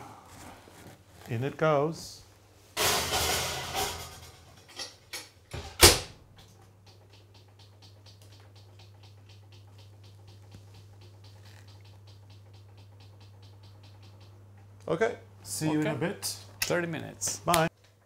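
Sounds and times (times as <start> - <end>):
oven humming: 2.8 - 17.7
oven timer ticking: 6.8 - 14.8.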